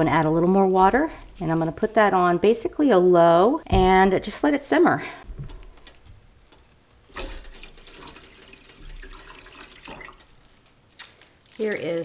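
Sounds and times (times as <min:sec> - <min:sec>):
water running into a metal pot: 0:07.1 - 0:10.4.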